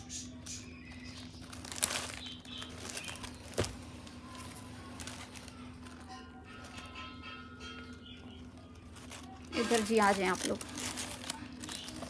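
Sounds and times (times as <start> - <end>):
plastic gift wrapping rustling: 0.4 - 12.0.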